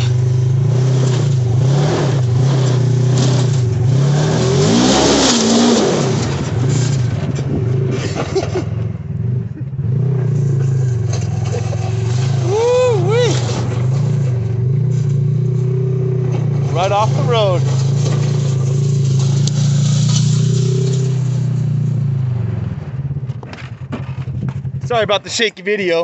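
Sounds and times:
tyres spinning in loose dirt: 0.0s - 22.5s, 23.1s - 26.0s
buggy engine revving hard: 0.0s - 25.1s.

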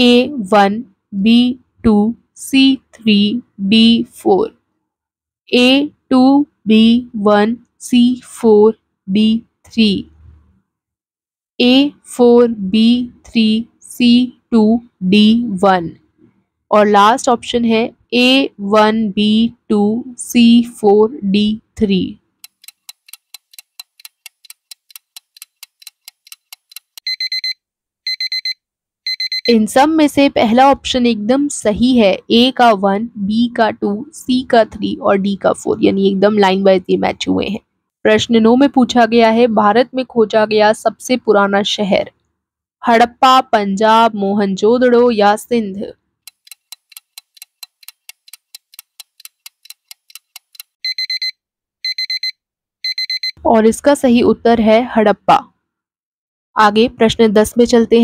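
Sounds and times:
fast clock ticking: 22.4s - 27.5s, 46.3s - 51.3s
alarm clock beeping: 22.6s - 29.6s, 49.6s - 53.4s
rapid high alarm beeps: 27.0s - 29.6s, 50.8s - 53.4s.

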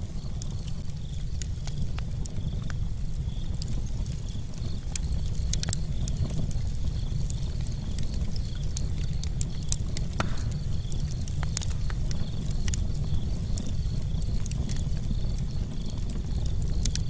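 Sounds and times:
fire low rumble: 0.0s - 17.0s
wood fire crackling and popping: 0.0s - 17.0s.

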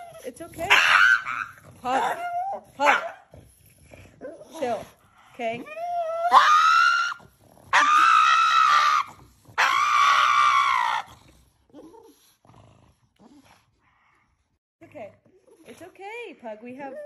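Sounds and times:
dog screaming: 0.6s - 3.2s, 6.0s - 11.1s.

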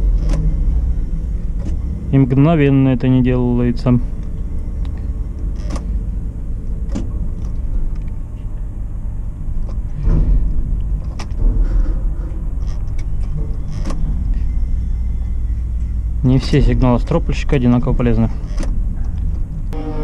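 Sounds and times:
crane drive humming: 0.0s - 20.0s
sharp clicks and knocks: 6.8s - 8.2s, 9.6s - 11.6s.

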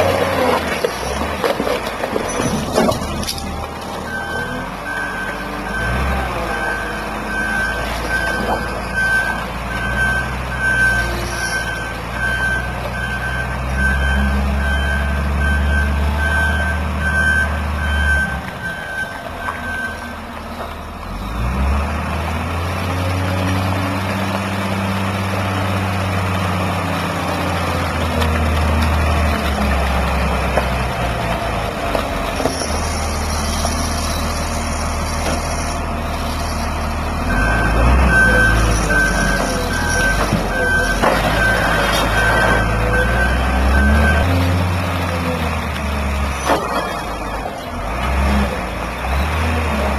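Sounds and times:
diesel engine revving: 0.0s - 49.9s
reversing alarm beeping: 4.1s - 20.1s, 37.3s - 44.4s.

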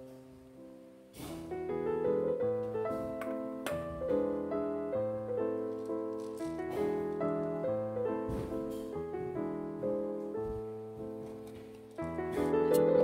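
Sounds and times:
slow piano music: 0.0s - 13.0s.

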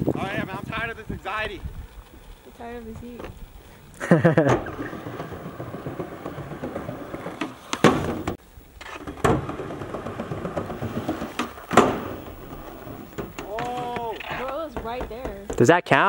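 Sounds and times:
steady noise: 0.0s - 15.9s
feet landing on metal roof: 4.2s - 8.4s, 9.0s - 15.8s.

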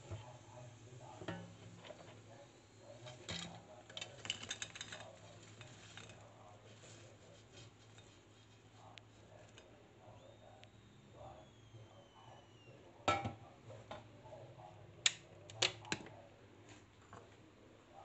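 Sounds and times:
faint low hum: 0.0s - 18.0s
chips clattering onto plate: 3.3s - 6.2s.

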